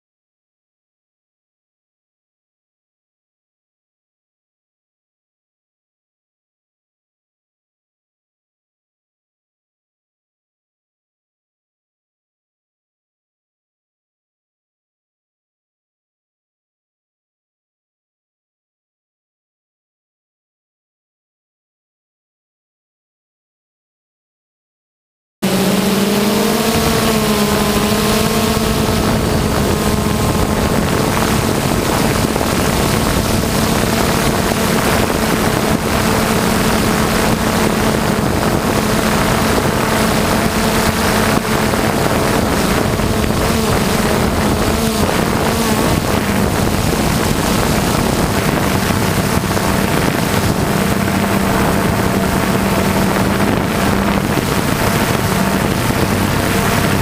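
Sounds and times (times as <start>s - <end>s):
drone propellers buzzing: 25.4s - 57.0s.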